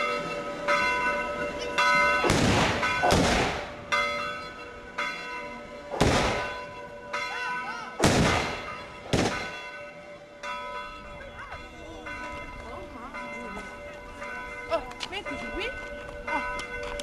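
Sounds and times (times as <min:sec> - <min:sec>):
church bells ringing: 0:00.0 - 0:17.0
gunshots with echo: 0:02.2 - 0:03.8, 0:06.0 - 0:06.7, 0:08.0 - 0:09.7.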